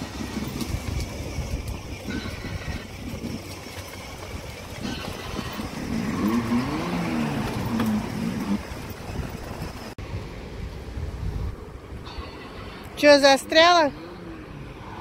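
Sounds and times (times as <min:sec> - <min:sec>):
synthetic engine roar: 0:00.0 - 0:10.5.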